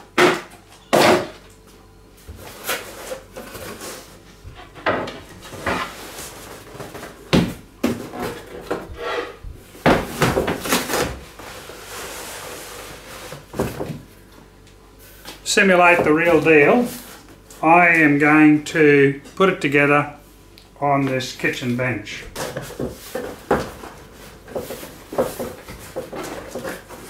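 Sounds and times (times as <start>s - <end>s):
cardboard box scraping and rustling: 10.7s - 13.6s.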